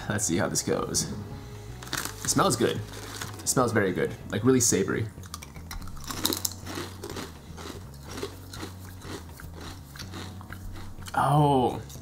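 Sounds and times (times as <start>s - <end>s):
chips crunching: 1.8s - 3.7s, 5.2s - 12.0s.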